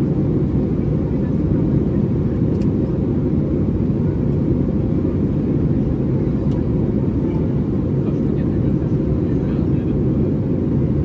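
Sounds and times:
airplane cabin rumble: 0.0 - 11.0.

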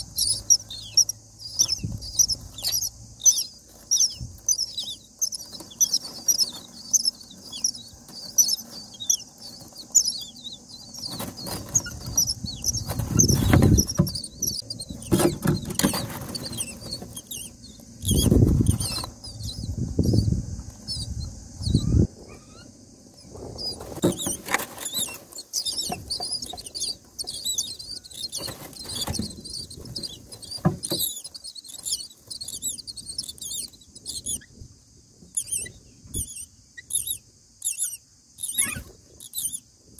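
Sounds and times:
rustling and bumps in nest: 0.0 - 21.2, 23.2 - 33.7
nestlings begging chirps: 0.0 - 39.8.

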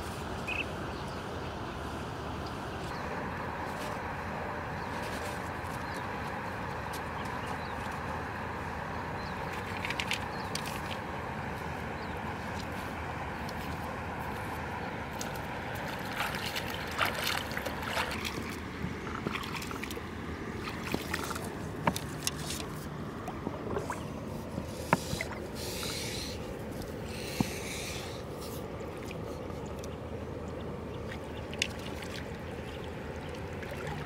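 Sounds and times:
feet splashing in shallow water: 12.4 - 30.1, 30.9 - 34.0.

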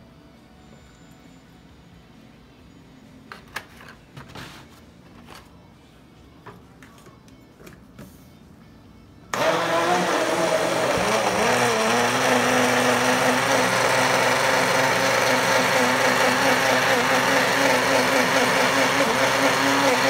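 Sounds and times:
blender motor running: 9.3 - 20.0.

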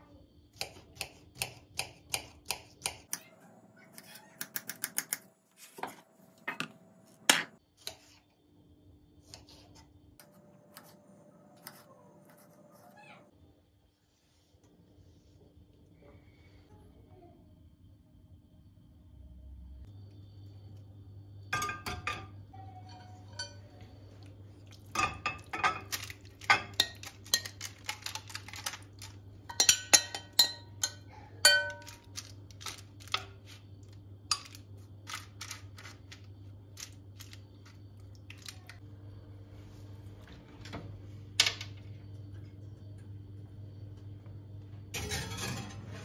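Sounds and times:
utensil clinking against glass dishes: 21.6 - 23.7, 29.5 - 32.0.

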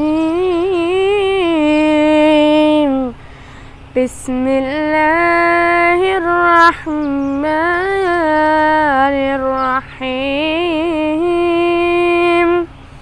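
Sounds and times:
boy breathing: 3.2 - 3.9
boy chanting melodically: 3.9 - 12.8.

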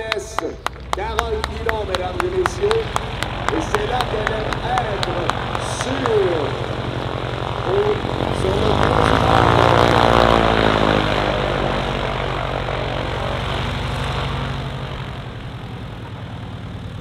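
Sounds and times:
propeller plane engine taxiing: 0.0 - 17.0.

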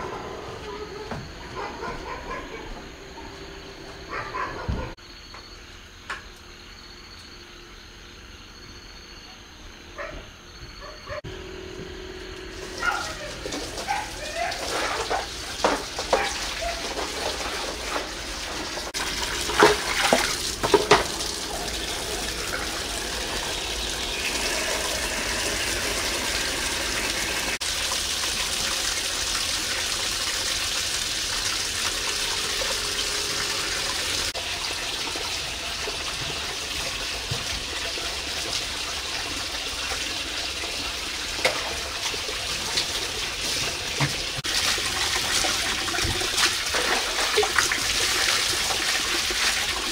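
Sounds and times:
water poured and splashing: 12.5 - 49.9.

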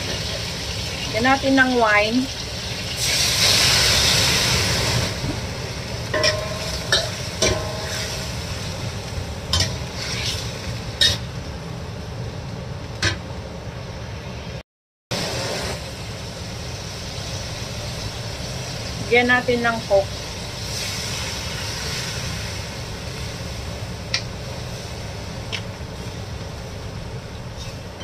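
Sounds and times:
chicken sizzling in a wok: 0.0 - 28.0
metal spatula scraping wok: 6.1 - 8.6, 9.5 - 11.3, 27.5 - 28.0.

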